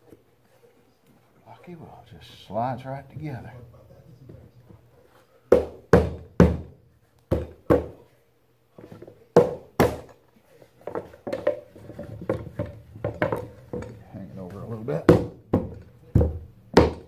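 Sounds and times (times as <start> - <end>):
light knocks and wood handling: 10.8 - 17.0.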